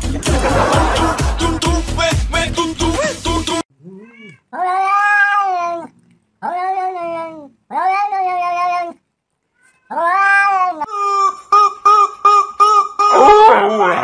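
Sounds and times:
cat meowing loudly: 3.8s - 9.0s, 9.6s - 10.9s.

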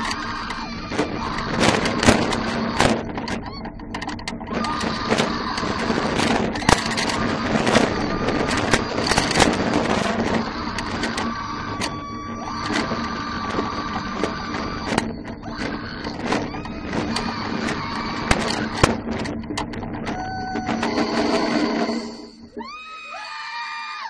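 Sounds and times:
wind rushing over camera: 0.0s - 22.2s
roller coaster clattering on track: 0.0s - 23.3s.

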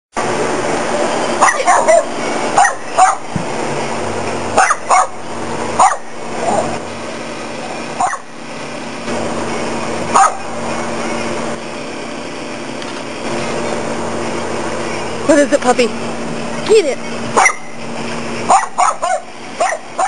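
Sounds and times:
low background hum: 0.2s - 20.0s
dog barking: 1.4s - 3.3s, 4.6s - 5.2s, 5.8s - 6.8s, 8.0s - 8.3s, 10.1s - 10.4s, 17.4s - 17.8s, 18.5s - 20.0s.

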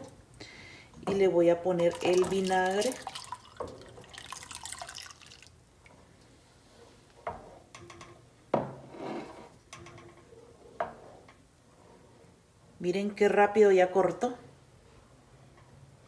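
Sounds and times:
spoon stirring milk sloshing: 1.0s - 6.0s
liquid pouring splash: 1.8s - 5.6s.

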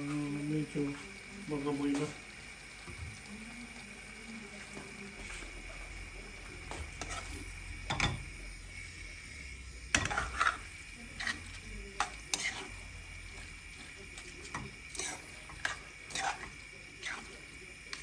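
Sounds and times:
low sizzle: 0.0s - 18.0s
spoon scraping frying pan: 6.6s - 8.4s, 9.9s - 18.0s.

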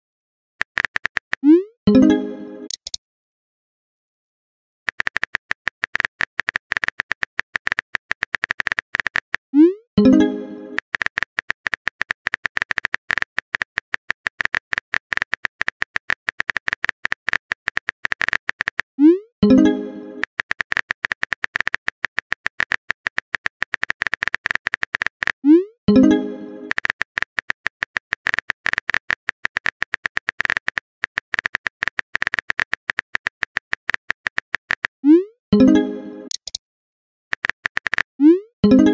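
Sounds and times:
phone keyboard tapping clicks: 0.6s - 1.4s, 2.7s - 3.0s, 4.9s - 9.4s, 10.7s - 18.8s, 26.7s - 34.9s, 36.3s - 36.6s.

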